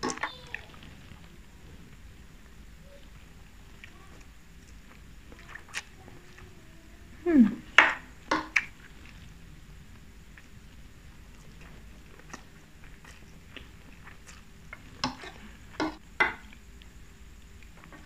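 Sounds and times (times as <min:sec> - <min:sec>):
quiet chewing: 0:00.0 - 0:18.0.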